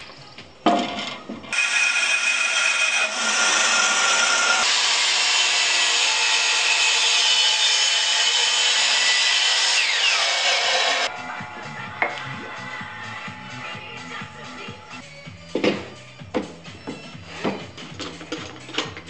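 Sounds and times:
miter saw whine: 1.6s - 15.0s.

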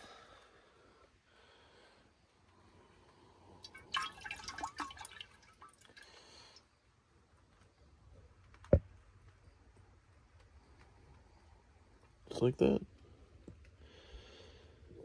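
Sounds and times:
water sloshing in glass beaker: 3.6s - 6.0s.

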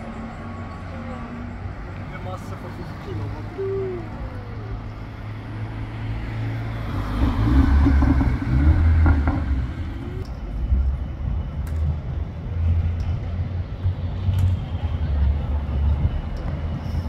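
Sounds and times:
street traffic rumble: 0.0s - 17.0s
car passing close: 2.2s - 10.3s.

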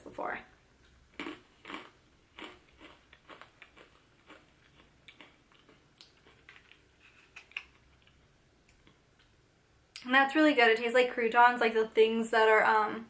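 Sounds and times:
person chewing crunchy bread stick: 1.1s - 8.2s.

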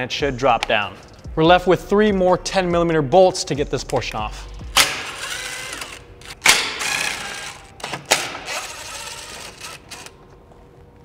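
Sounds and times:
power driver motor running: 4.7s - 10.3s.

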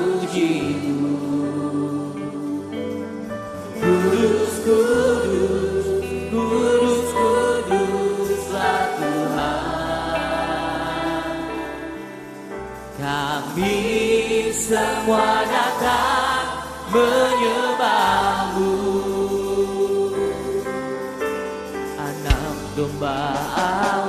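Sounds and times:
gospel band playing: 0.0s - 24.0s
choir singing held notes: 3.8s - 21.1s
steady bass notes: 22.3s - 23.8s.

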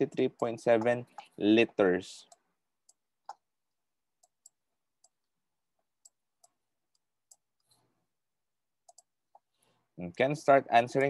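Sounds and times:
faint irregular clicks: 0.0s - 1.4s, 2.2s - 3.5s, 4.2s - 8.0s, 8.8s - 9.8s.

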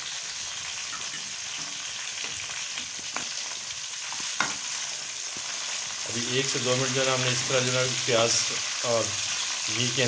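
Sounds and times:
vegetables sizzling in pan: 0.0s - 10.0s
steel ladle clinking on pan: 0.9s - 1.4s.

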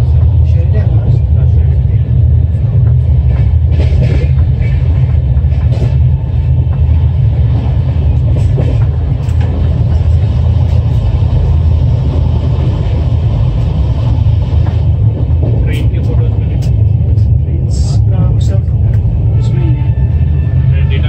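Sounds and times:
train coach rumbling on track: 0.0s - 21.0s.

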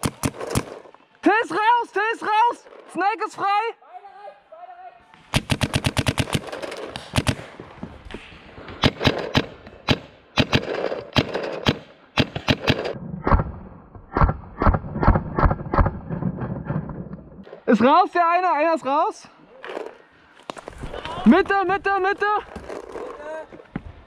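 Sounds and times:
paintball markers firing: 0.0s - 0.9s, 5.2s - 13.5s.

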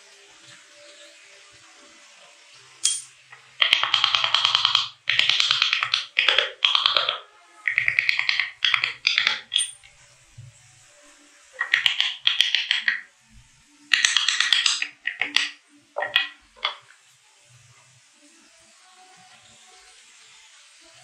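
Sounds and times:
wooden mallet striking chisel: 3.6s - 9.9s, 11.6s - 13.1s, 13.9s - 16.8s.

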